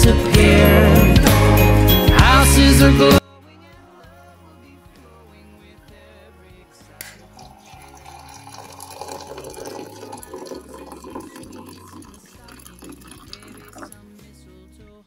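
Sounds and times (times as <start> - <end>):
water pouring into a mug: 7.2 - 14.0.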